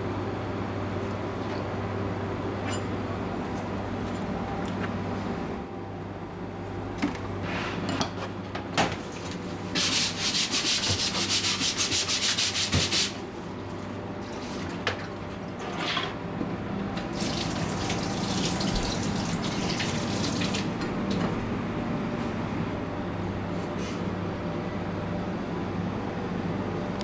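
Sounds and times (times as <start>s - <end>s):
steady low hum: 0.0s - 12.2s, 20.6s - 27.0s.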